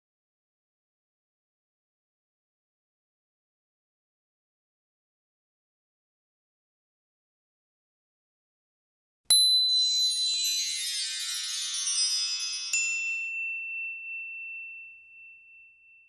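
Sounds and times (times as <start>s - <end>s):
high ringing ding: 9.3s - 16.0s
shimmering high chimes: 9.3s - 16.0s.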